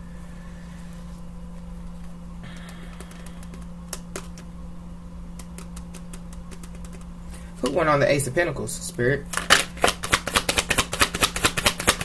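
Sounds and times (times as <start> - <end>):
steady low hum: 0.0 - 12.0
cards clicking and tapping: 2.0 - 4.5, 5.3 - 7.1, 9.4 - 12.0.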